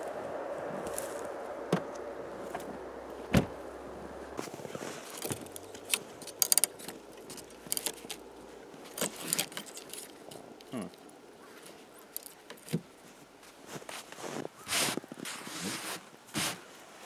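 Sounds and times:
footsteps crunching in snow: 0.0 - 6.2, 13.0 - 17.0
faint steady hum: 0.0 - 15.3
handling knocks and clicks: 4.4 - 10.7.

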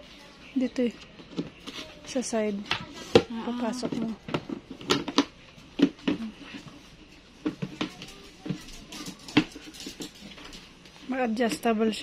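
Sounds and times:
hard plastic knocking and clicking: 2.6 - 6.2.

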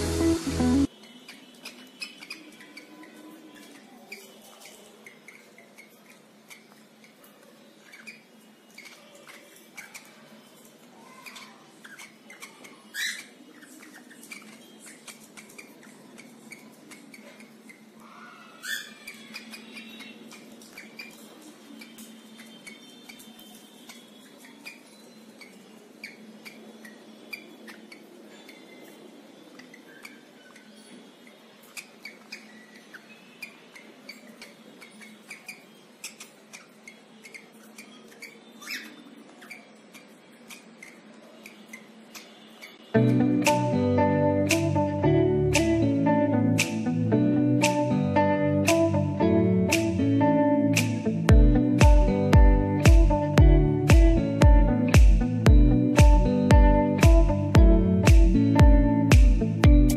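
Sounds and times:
cockatiel chirps: 31.7 - 42.8.

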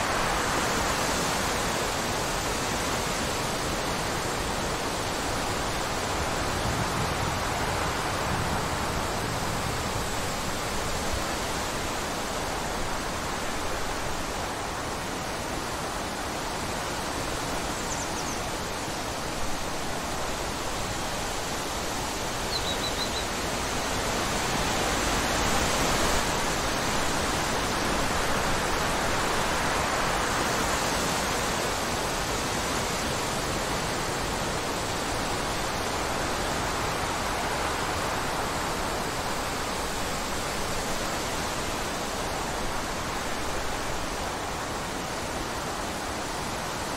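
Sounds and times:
wind through trees: 0.0 - 46.9
faint bird chirps: 17.7 - 18.5, 22.5 - 23.3.

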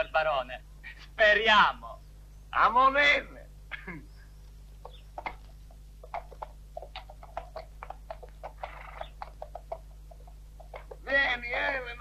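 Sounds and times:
horse hooves clopping on hard ground: 4.8 - 11.5.

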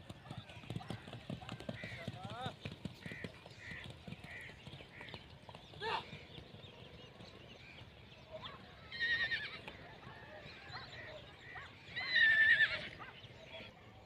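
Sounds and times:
horse neighing: 12.0 - 13.0.

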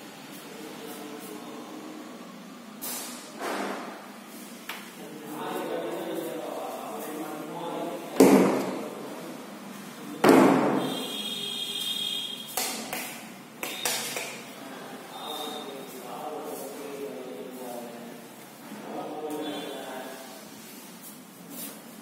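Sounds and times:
loud thuds ringing in a room: 10.2 - 11.0.

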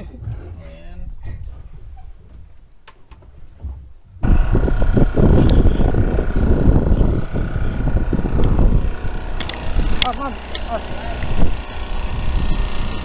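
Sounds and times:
wind buffeting microphone: 0.0 - 2.6, 3.6 - 13.0
boat engine running: 4.2 - 13.0.

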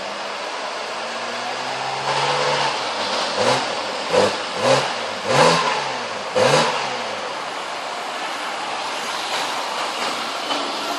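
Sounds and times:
car engine revving: 0.0 - 7.8.

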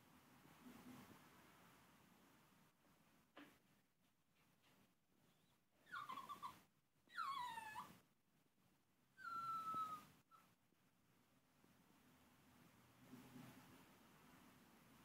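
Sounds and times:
puppy whining: 5.3 - 8.0, 9.1 - 10.6.

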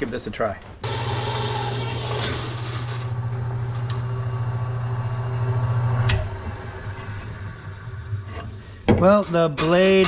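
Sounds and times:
saw cutting wooden board: 0.8 - 3.1
band saw motor hum: 0.8 - 8.4.

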